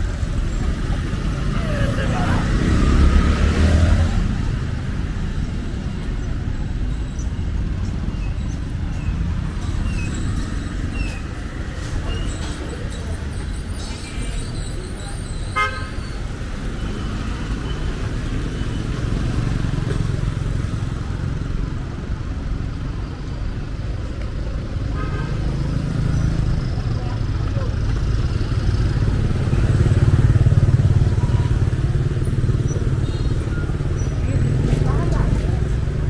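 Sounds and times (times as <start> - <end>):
traffic rumble: 0.0 - 36.0
car horn beep: 15.5 - 16.1.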